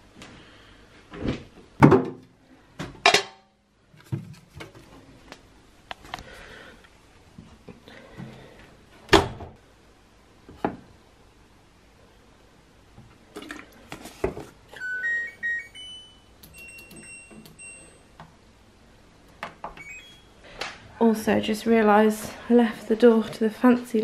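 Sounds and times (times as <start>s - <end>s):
button beeps: 19.8s - 20.3s.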